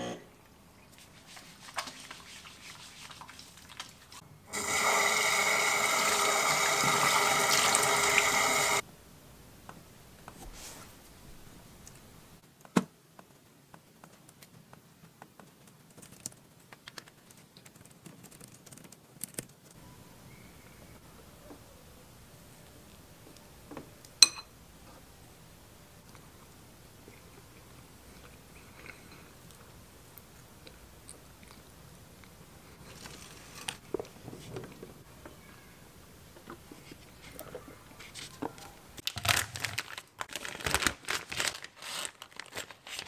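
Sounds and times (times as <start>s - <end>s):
tap water running into basin: 1.6s - 8.8s.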